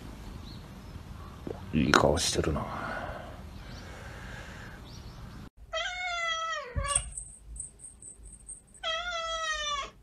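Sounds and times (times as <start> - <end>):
kitten meowing: 5.8 - 7.2.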